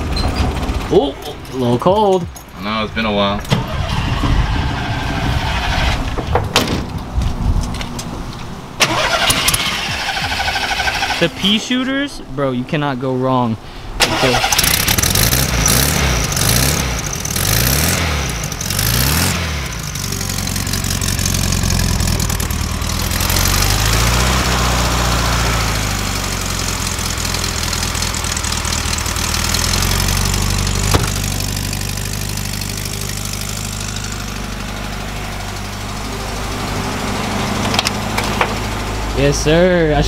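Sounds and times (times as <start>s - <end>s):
engine revving and idling: 14.1s - 40.0s.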